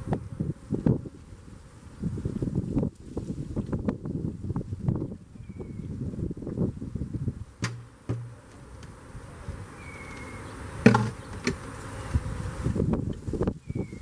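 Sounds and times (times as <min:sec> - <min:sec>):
wind on microphone: 0:00.0 - 0:07.6, 0:12.0 - 0:14.0
honeybees buzzing: 0:00.0 - 0:14.0
wooden knocks on hive box: 0:07.6 - 0:08.6, 0:10.8 - 0:11.6.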